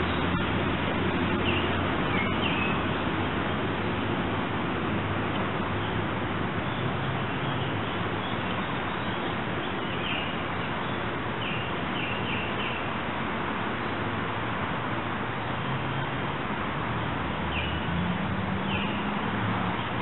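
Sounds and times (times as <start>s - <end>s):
birds chirping: 0.0s - 3.0s
steady outdoor rushing noise: 0.0s - 20.0s.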